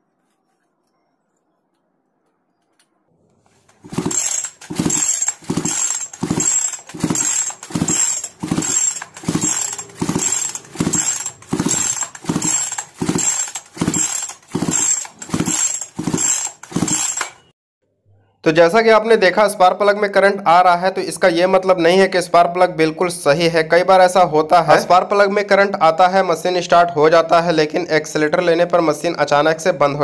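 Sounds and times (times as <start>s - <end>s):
chainsaw recoil starter pulls: 3.5s - 17.5s.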